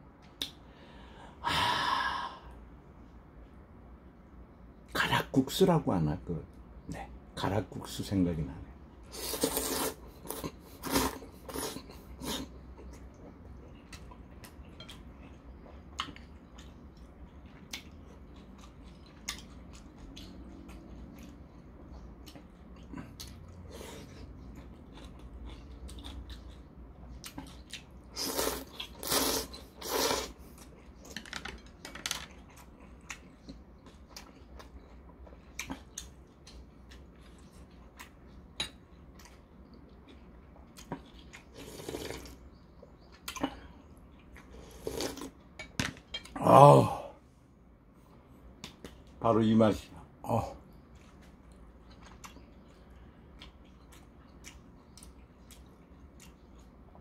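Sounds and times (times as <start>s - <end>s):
man slurping noodles: 9.1s - 12.5s, 28.2s - 30.4s, 41.6s - 42.4s, 44.7s - 45.3s
chewing: 9.2s - 31.2s, 32.2s - 45.4s, 50.7s - 57.0s.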